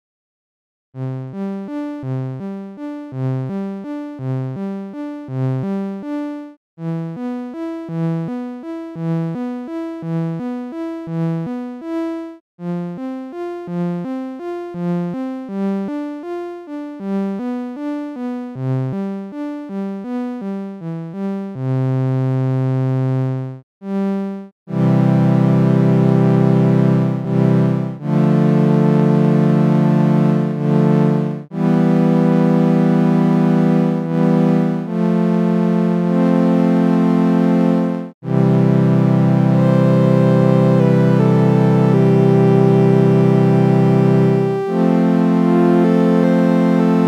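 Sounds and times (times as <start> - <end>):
synthesizer notes: 23.2 - 47.0.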